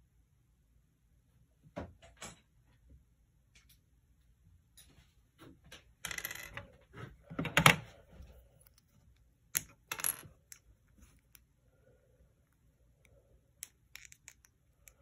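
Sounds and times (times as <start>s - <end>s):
plastic bricks clicking and clattering: 13.6s - 15.0s.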